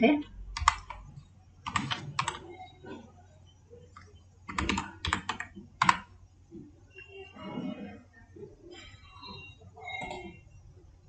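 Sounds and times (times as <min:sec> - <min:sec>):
computer keyboard keystrokes: 0:00.6 - 0:01.0, 0:01.6 - 0:02.5, 0:04.0 - 0:06.1.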